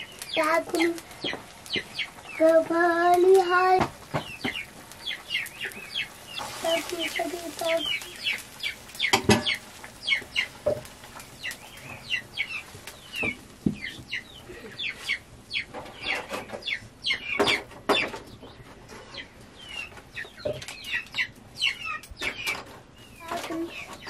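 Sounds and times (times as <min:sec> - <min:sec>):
chickens clucking and peeping: 0:00.0 - 0:24.0
cooking pots knocking: 0:09.1 - 0:09.6.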